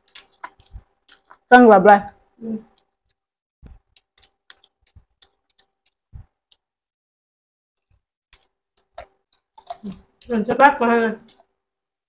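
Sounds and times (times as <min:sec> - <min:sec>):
chewing clicks and mouth smacks: 0:00.0 - 0:01.5, 0:02.7 - 0:06.7, 0:08.3 - 0:10.3.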